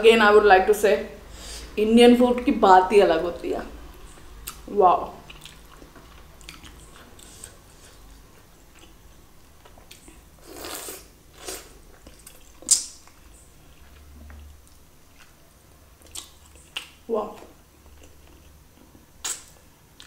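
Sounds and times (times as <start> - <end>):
chewing with mouth smacks: 4.1 - 15.4, 16.0 - 20.0.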